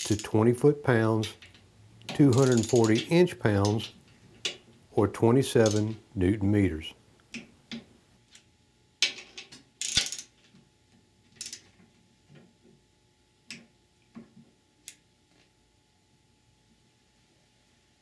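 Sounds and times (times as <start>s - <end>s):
torque wrench clicks: 2.3s - 3.0s, 5.6s - 5.9s
wrench ratcheting: 2.3s - 3.8s, 5.6s - 5.9s, 9.8s - 10.3s, 11.4s - 11.6s.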